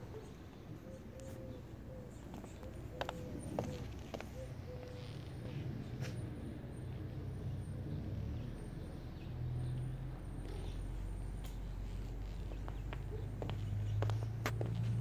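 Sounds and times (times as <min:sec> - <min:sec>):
low outdoor rumble: 0:00.0 - 0:15.0
footsteps on concrete: 0:02.3 - 0:04.9, 0:11.4 - 0:15.0.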